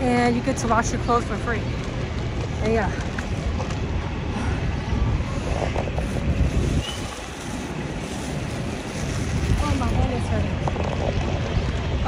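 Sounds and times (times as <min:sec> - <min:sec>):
city street traffic: 0:00.0 - 0:12.0
wind buffeting microphone: 0:00.0 - 0:12.0.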